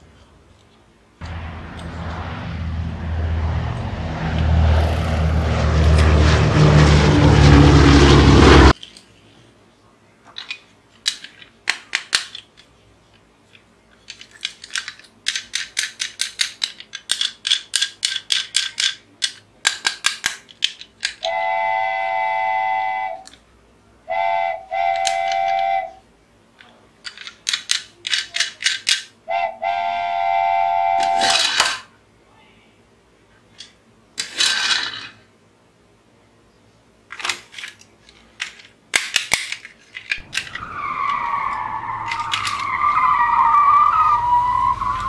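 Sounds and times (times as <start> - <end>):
toy car rapid clicking: 14.1 - 21.3, 24.9 - 25.7, 27.0 - 29.1, 31.0 - 31.9, 42.0 - 42.7
toy whistle-like tone: 21.2 - 23.3, 24.1 - 26.0, 29.3 - 31.5, 40.3 - 45.0.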